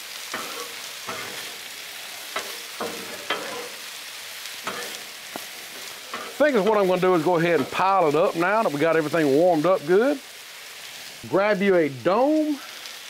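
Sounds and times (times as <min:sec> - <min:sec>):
food sizzling on a griddle: 0:00.0 - 0:13.0
metal spatulas scraping steel: 0:00.3 - 0:03.9, 0:04.6 - 0:06.9.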